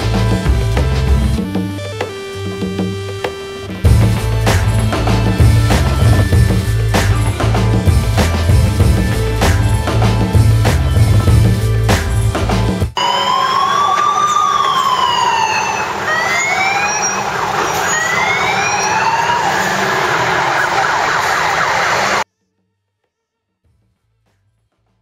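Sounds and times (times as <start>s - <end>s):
emergency vehicle siren wailing: 3.8s - 8.0s, 13.0s - 22.2s
passing road traffic: 14.0s - 22.2s.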